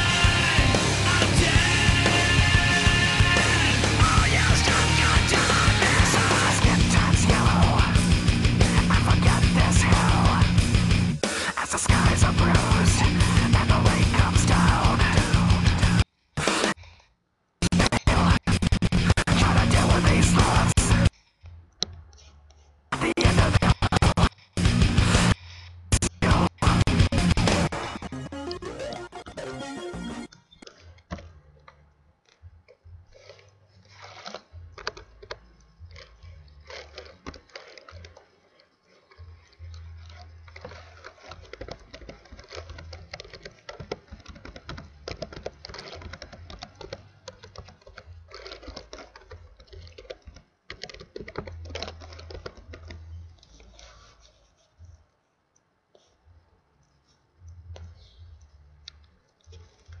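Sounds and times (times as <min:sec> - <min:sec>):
keyboard typing: 0:26.0 - 0:31.8, 0:33.2 - 0:53.9.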